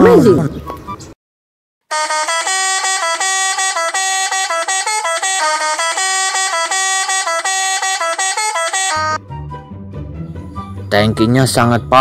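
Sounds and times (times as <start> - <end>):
musical truck horn tune: 1.9 - 9.3.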